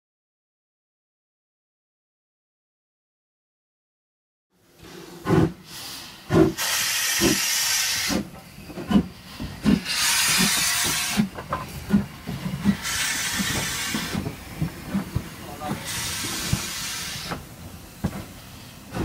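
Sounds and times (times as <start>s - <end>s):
steam locomotive moving slowly: 4.6s - 19.0s
steam hissing: 4.8s - 19.0s.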